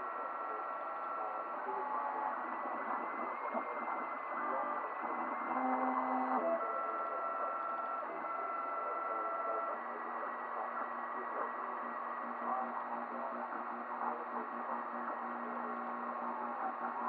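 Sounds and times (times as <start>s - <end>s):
steady mechanical whir: 0.0s - 17.0s.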